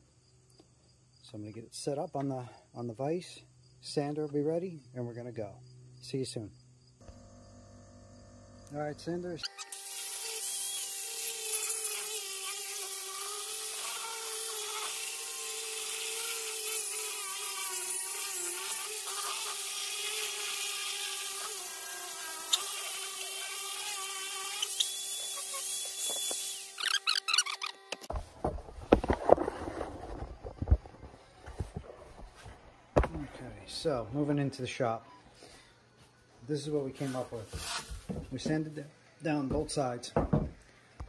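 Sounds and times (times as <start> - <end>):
electric sander on wood: 7.0 - 28.0.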